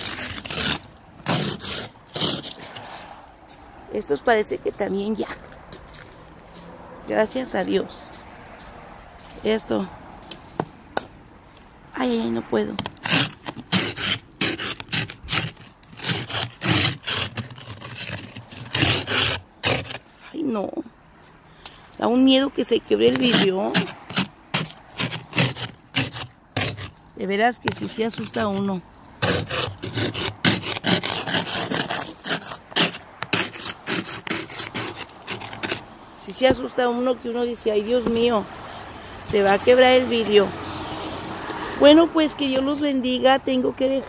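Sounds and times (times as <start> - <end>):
ice scraped off car window: 0.0 - 3.2, 12.0 - 20.2, 22.6 - 38.4.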